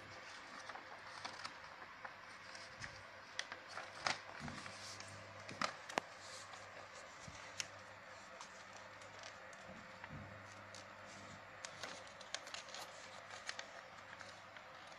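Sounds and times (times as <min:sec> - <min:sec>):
paper rustling and crinkling: 0:00.0 - 0:14.9.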